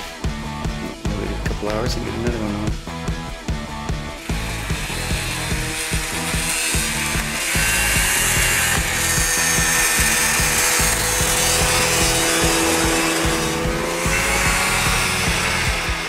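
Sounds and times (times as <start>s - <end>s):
snowmobile engine passing: 4.8s - 16.0s.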